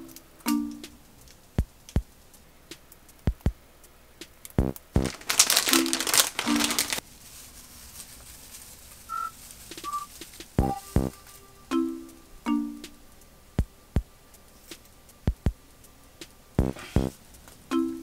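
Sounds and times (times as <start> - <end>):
music with drum-machine beat: 3.2 - 3.6, 4.6 - 5.2, 9.8 - 11.4, 14.7 - 15.6, 16.6 - 17.2
plastic bag crinkling: 4.9 - 10.5.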